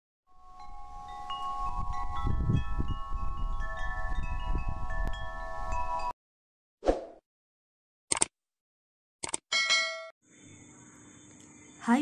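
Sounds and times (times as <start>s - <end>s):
chimes ringing: 0.4s - 6.1s.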